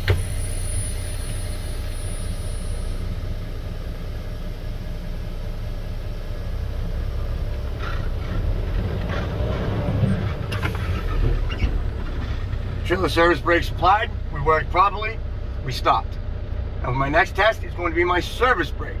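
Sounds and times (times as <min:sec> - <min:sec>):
diesel truck engine rumbling: 0:00.0 - 0:19.0.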